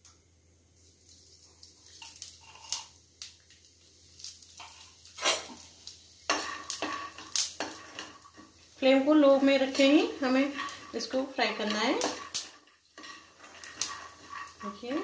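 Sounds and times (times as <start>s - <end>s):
metal spoon scraping a pan: 1.9s - 2.9s, 4.3s - 5.7s, 6.3s - 15.0s.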